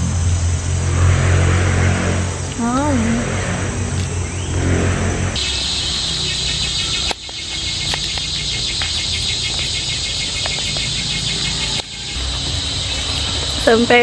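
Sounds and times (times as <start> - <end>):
low rumble: 0.0 - 7.2
high-pitched insect chorus: 0.0 - 14.0.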